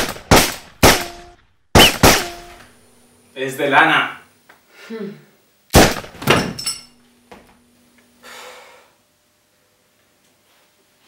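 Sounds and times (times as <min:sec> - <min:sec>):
person's sharp breath: 0:08.2 - 0:09.0.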